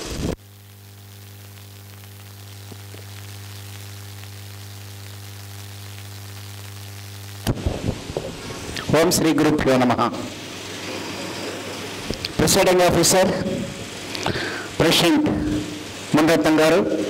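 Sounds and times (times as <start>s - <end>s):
electrical mains hum: 0.0s - 17.0s
hiss: 7.4s - 9.0s, 10.2s - 17.0s.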